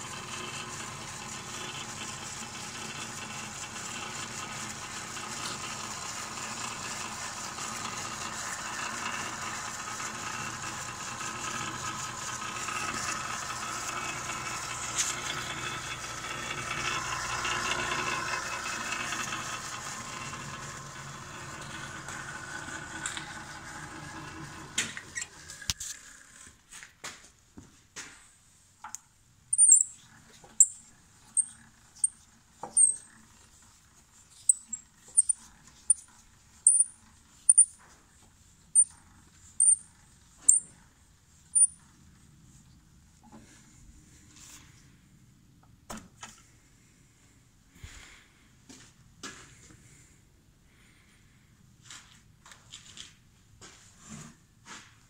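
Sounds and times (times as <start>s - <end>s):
drill press motor running: 0.0s - 26.5s, 30.6s - 33.6s, 34.4s - 37.9s, 38.7s - 40.8s.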